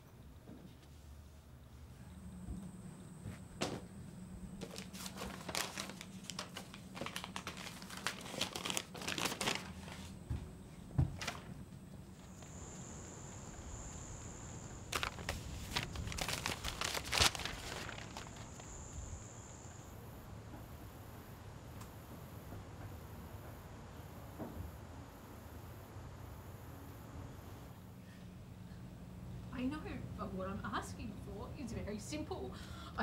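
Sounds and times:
paper rustling and crinkling: 4.6s - 10.2s, 11.0s - 11.6s, 14.9s - 18.8s.

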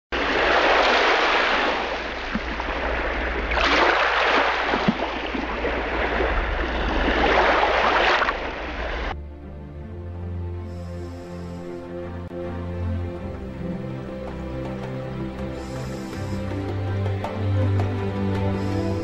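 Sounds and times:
ocean waves washing in and out: 0.1s - 19.0s.

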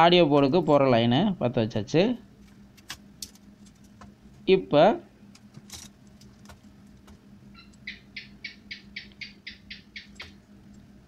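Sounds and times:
faint steady hum: 0.0s - 11.0s
animal chirping: 7.5s - 10.4s.

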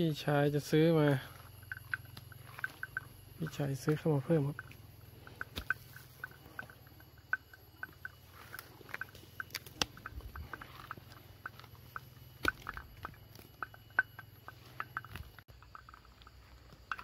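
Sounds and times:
cow chewing: 0.0s - 17.0s
cow tearing grass: 1.3s - 3.2s, 7.8s - 16.8s.

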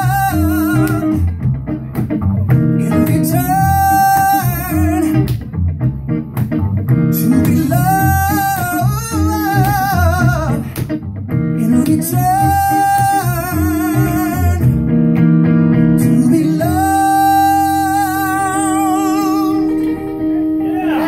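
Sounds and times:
man singing with vibrato: 0.0s - 1.2s, 2.8s - 5.3s, 7.1s - 10.8s, 11.6s - 14.8s, 16.0s - 21.0s.

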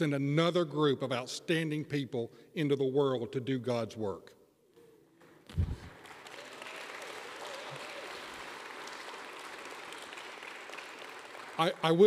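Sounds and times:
audience applauding: 5.5s - 12.0s.

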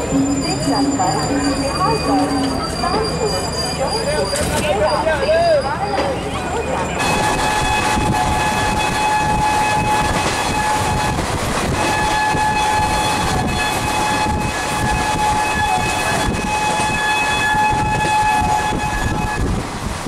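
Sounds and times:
train rumble: 0.0s - 20.0s.

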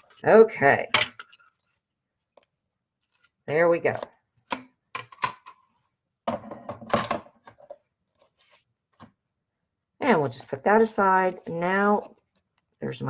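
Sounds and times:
paper rustle: 8.2s - 8.7s.

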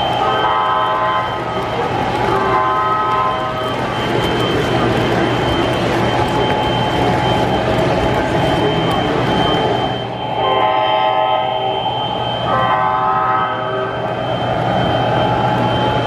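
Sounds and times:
model train rumbling on track: 0.0s - 16.0s
model train horn blasts: 0.2s - 1.3s, 2.4s - 3.5s, 10.4s - 14.0s.

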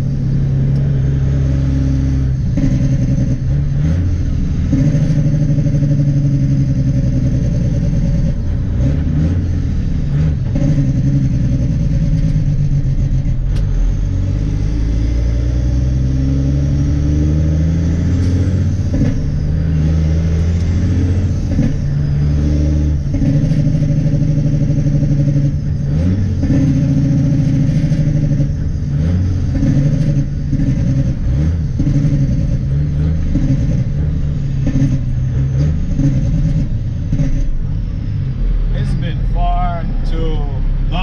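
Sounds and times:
truck diesel engine: 0.0s - 41.0s.

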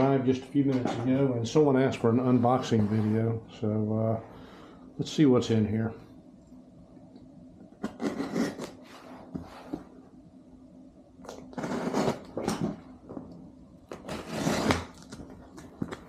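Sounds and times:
low steady hum: 0.0s - 16.0s
knife slicing packing tape: 7.8s - 8.8s, 11.6s - 12.6s, 13.9s - 15.2s
cardboard scraping and rustling: 14.0s - 15.8s.

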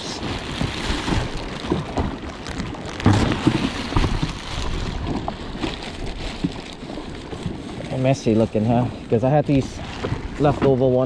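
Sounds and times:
plastic bag crinkling: 0.0s - 8.6s
waves lapping: 0.0s - 11.0s
wind buffeting microphone: 0.0s - 11.0s.

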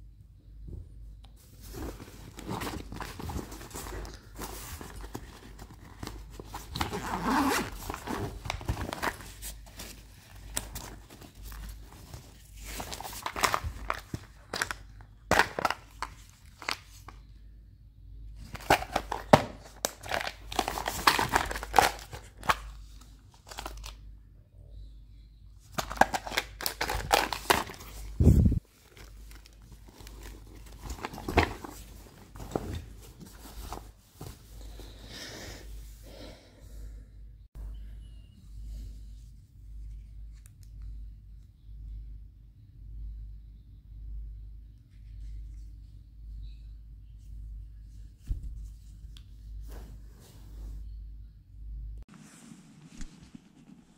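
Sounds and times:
nylon bag rustling: 1.6s - 14.7s, 26.0s - 34.4s
zipper being worked: 6.8s - 8.1s.

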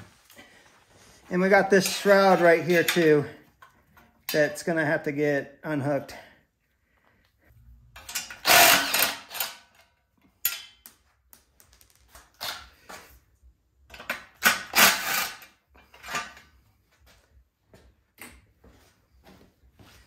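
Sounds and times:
tools and parts clicking and scraping: 1.6s - 4.5s, 7.8s - 13.2s, 13.8s - 16.7s.

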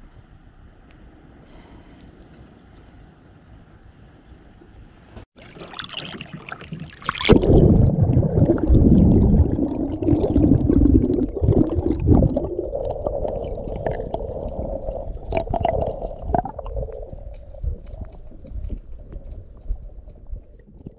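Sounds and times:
water splashing over camera: 5.4s - 20.9s
muffled underwater rumbling: 7.1s - 20.9s.

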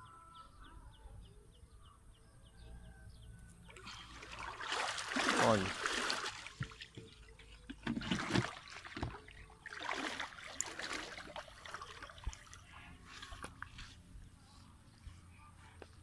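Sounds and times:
muddy water splashing: 3.7s - 13.7s.

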